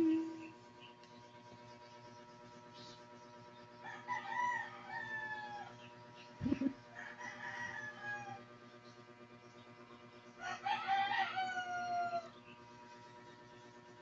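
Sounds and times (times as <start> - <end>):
faint steady hum: 0.0 - 14.0
rooster crowing: 3.8 - 5.8, 6.9 - 8.5, 10.4 - 12.4.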